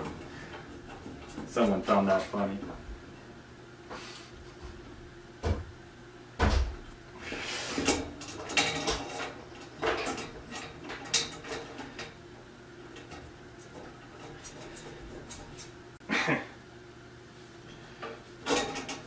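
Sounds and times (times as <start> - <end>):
metal scraping and rattling: 7.4 - 12.2.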